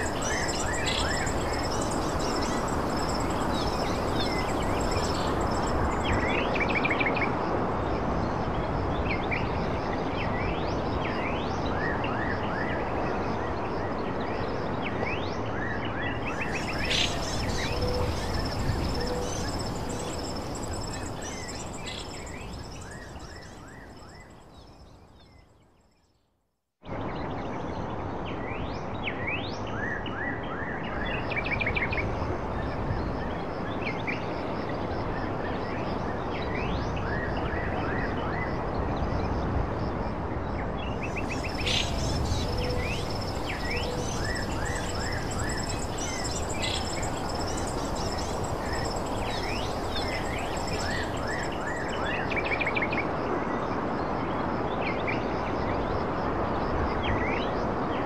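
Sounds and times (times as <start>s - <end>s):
small birds chirping: 0.0s - 6.3s, 16.3s - 24.8s, 41.0s - 52.6s
steady background noise: 0.0s - 25.2s, 26.9s - 58.0s
thin high steady tone: 16.4s - 24.2s, 41.2s - 52.1s.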